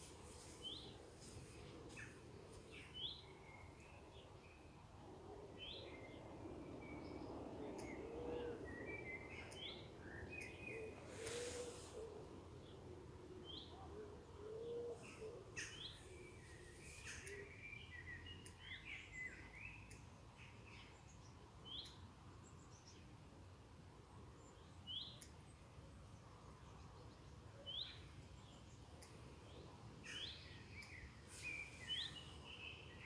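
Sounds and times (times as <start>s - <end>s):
brief hiss of noise: 11.1s - 12.1s
small birds chirping: 26.5s - 33.0s.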